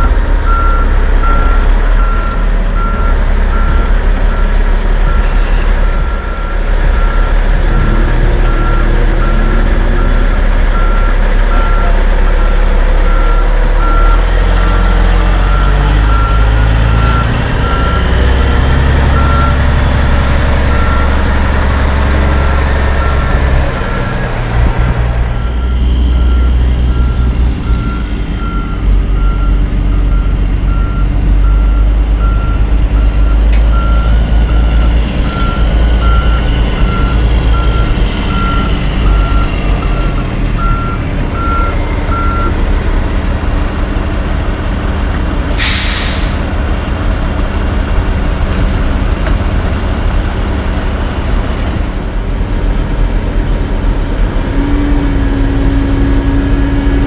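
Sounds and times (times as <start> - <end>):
reversing alarm beeping: 0.0 - 24.2, 25.4 - 42.6
diesel truck engine running: 0.0 - 57.0
air brake hiss: 5.2 - 5.8, 45.6 - 46.6.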